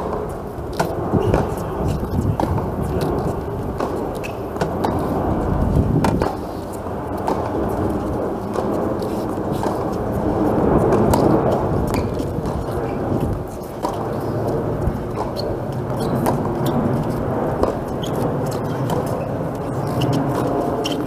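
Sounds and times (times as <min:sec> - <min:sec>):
wind buffeting microphone: 0:00.0 - 0:21.0
tennis rackets striking ball: 0:00.7 - 0:05.2, 0:06.0 - 0:07.6, 0:15.1 - 0:21.0.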